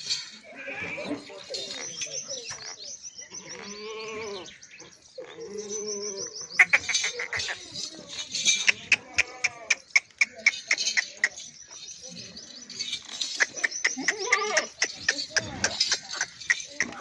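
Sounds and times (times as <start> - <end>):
goats bleating: 8.7 - 10.6, 13.6 - 17.0.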